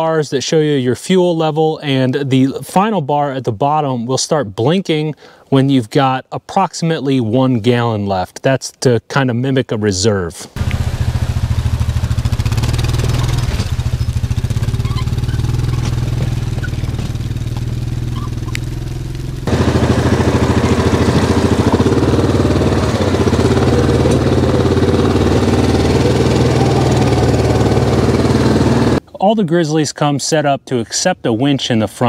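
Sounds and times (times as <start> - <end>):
atv engine running: 10.6 - 29.0.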